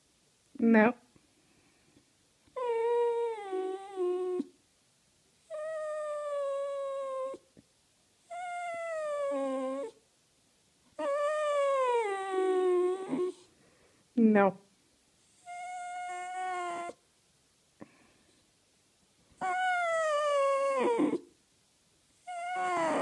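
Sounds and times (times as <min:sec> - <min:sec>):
dog whining: 0:02.5 - 0:04.5, 0:05.4 - 0:07.5, 0:08.2 - 0:10.0, 0:11.0 - 0:13.5, 0:15.3 - 0:17.0, 0:19.4 - 0:21.3, 0:22.2 - 0:23.0.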